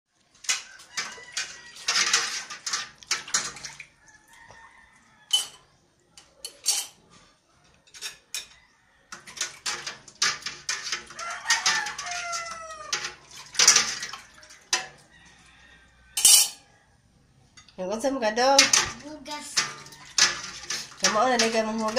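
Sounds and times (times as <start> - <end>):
dishes clinking in a sink: 0.4 - 3.9, 5.3 - 7.0, 7.8 - 15.1, 16.2 - 16.7, 18.5 - 21.9.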